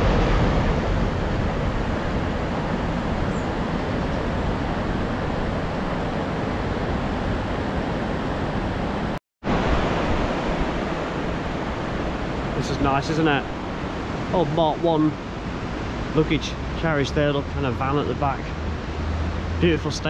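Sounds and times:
river rushing over rocks: 0.0 - 16.7.

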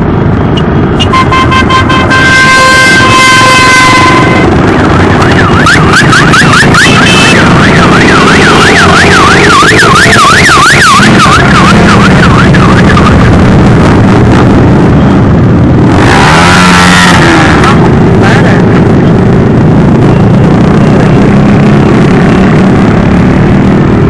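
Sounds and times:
motorcycle engines passing: 0.0 - 24.0
siren warbling: 1.0 - 13.4.

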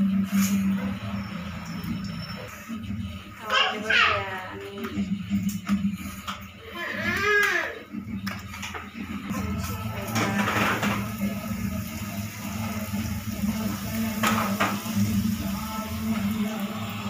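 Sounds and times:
dough sizzling in hot oil: 0.0 - 4.3, 8.0 - 17.0
utensils knocking against pan: 8.2 - 11.2, 14.1 - 15.0.

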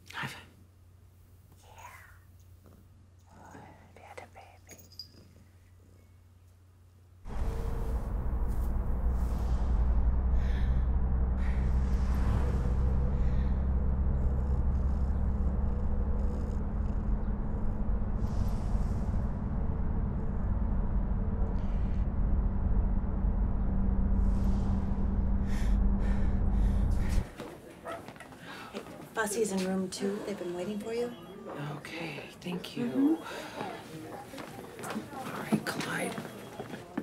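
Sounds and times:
car engine and road drone: 7.2 - 27.4.

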